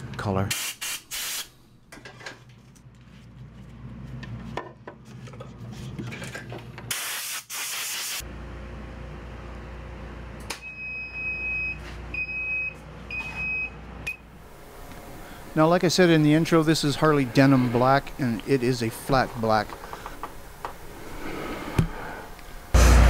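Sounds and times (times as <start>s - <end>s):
compressed air hissing: 0.5s - 1.5s
fan humming: 8.2s - 23.0s.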